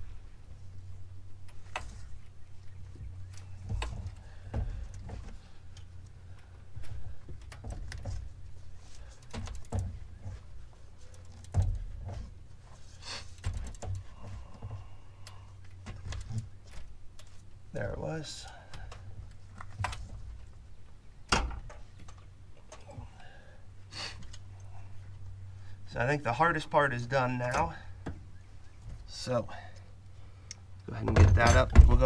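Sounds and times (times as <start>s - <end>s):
steady low hum: 0.0s - 32.0s
small metal knocks: 31.0s - 32.0s.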